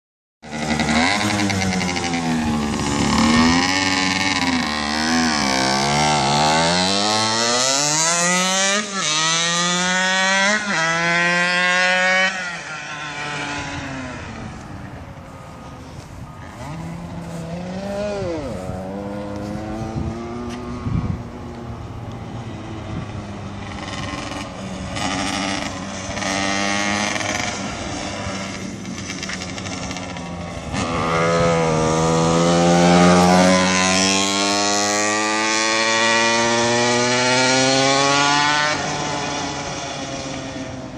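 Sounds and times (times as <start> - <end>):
kart engine revving through gears: 0.4 - 14.8, 16.5 - 21.3, 22.1 - 40.9.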